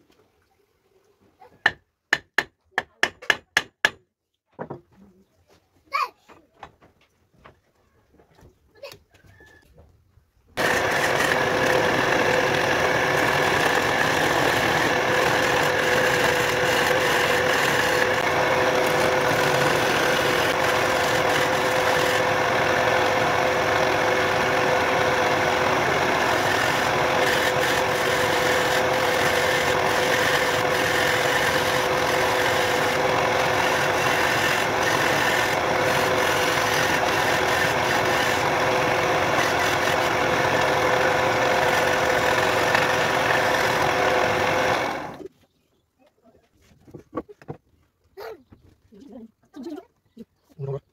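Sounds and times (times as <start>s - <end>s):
chisel scraping spinning wood: 10.6s - 45.3s
wood lathe humming: 10.6s - 45.3s.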